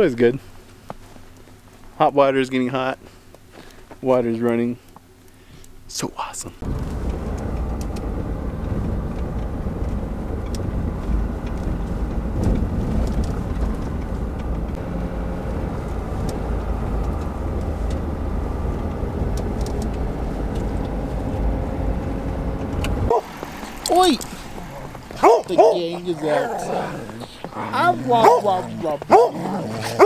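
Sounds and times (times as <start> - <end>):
engine and tyre rumble: 6.6 - 30.0
faint clicks and rattles: 6.8 - 14.8.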